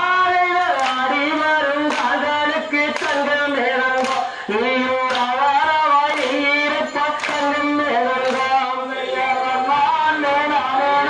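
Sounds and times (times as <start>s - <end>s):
unaccompanied folk singing: 0.0s - 11.0s
sharp hand claps: 0.5s - 8.8s.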